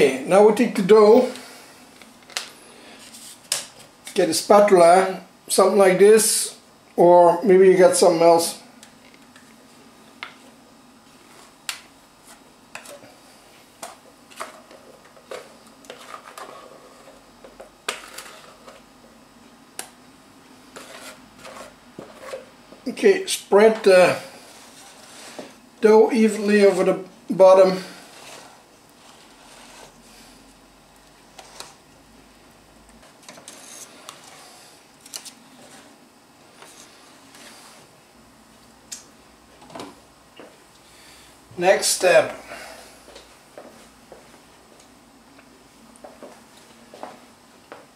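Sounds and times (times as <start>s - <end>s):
spatula scraping plastic bowl: 14.4s - 18.9s, 20.7s - 22.5s, 24.4s - 25.6s, 27.9s - 30.0s.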